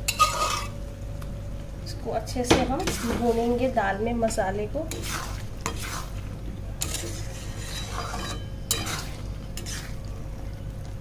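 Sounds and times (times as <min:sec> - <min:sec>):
metal spatula scraping a pan: 0:00.0 - 0:00.8, 0:04.9 - 0:06.2, 0:06.8 - 0:10.0
food frying: 0:00.0 - 0:11.0.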